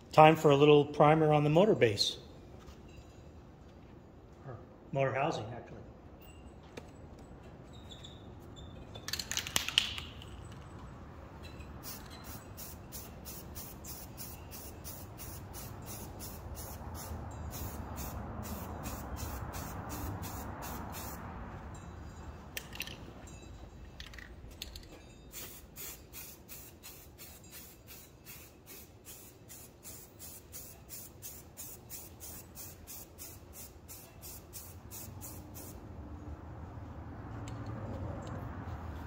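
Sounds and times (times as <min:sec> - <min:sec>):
aerosol can spraying strokes: 0:11.8 - 0:21.2, 0:25.4 - 0:35.8.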